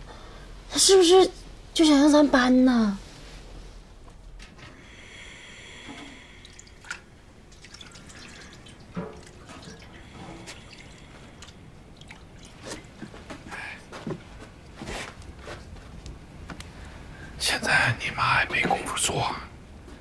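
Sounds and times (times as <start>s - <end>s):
water dripping: 6.0s - 13.6s.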